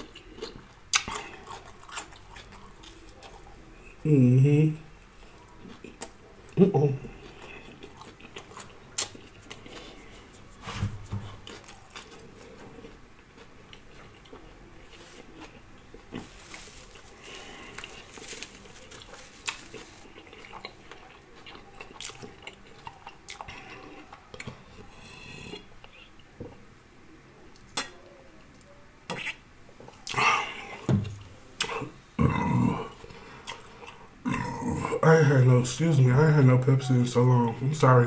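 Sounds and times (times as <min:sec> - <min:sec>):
chewing and lip-smacking: 0:00.0 - 0:03.5, 0:05.2 - 0:10.5, 0:11.2 - 0:16.3, 0:18.8 - 0:26.3, 0:33.0 - 0:34.2.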